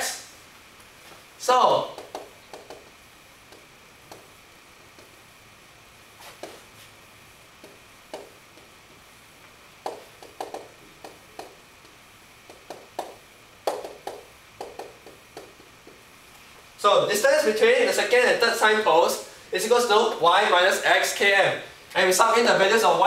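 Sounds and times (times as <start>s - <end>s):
marker writing on a whiteboard: 1.9s - 2.9s, 6.2s - 6.9s, 7.6s - 9.0s, 9.8s - 16.0s.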